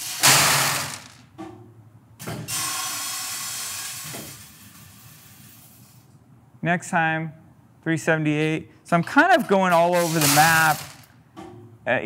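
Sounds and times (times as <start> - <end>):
beans dumping into plastic bucket: 0.0 - 1.2, 9.4 - 11.0
machine feeder hissing with beans: 0.0 - 1.2, 2.5 - 6.0, 9.7 - 11.0.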